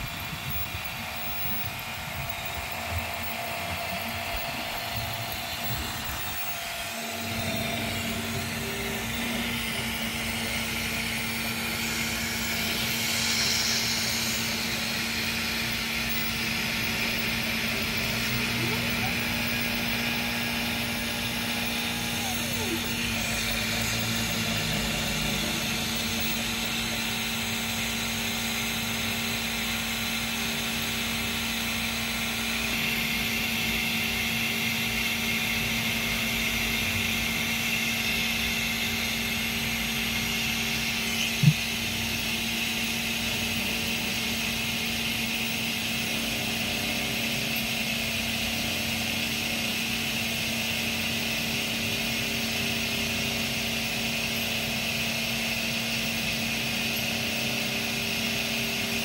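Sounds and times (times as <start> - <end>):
air compressor humming with whine: 0.0 - 59.0.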